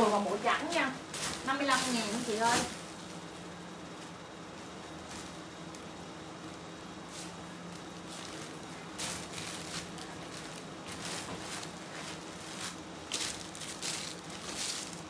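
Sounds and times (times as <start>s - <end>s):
clothes and plastic bags rustling: 0.0s - 15.0s.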